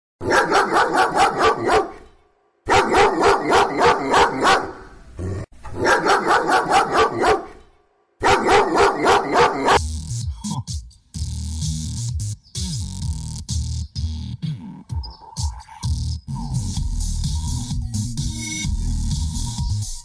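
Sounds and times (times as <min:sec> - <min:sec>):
dog barking: 0:00.2 - 0:02.1, 0:02.7 - 0:05.0, 0:05.6 - 0:07.6, 0:08.2 - 0:09.8.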